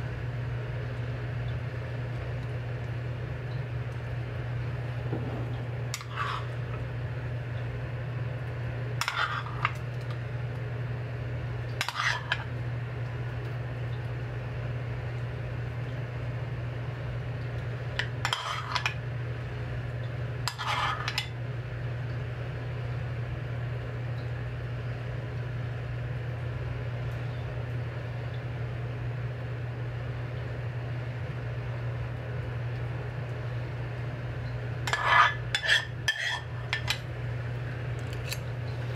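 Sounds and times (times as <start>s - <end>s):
steady low hum: 0.0s - 38.9s
utensils clinking on dishes: 34.9s - 37.0s.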